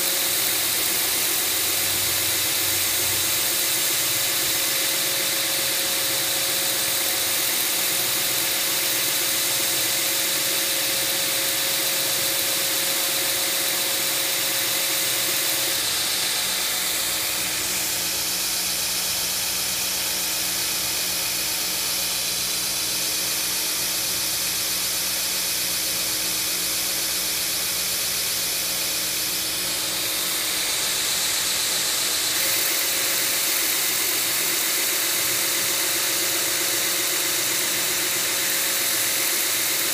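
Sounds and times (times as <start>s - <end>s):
belt grinder running: 0.0s - 39.9s.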